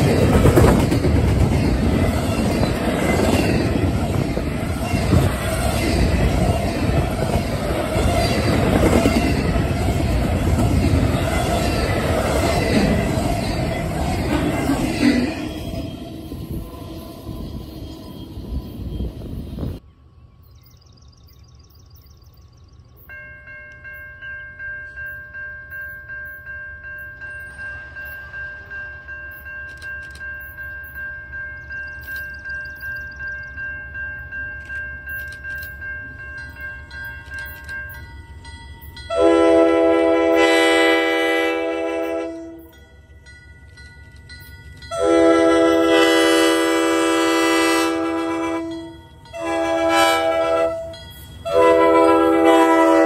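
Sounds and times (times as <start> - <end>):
locomotive rumble and whine: 0.0 - 20.0
locomotive air horn blasts: 39.1 - 42.7, 44.9 - 53.0.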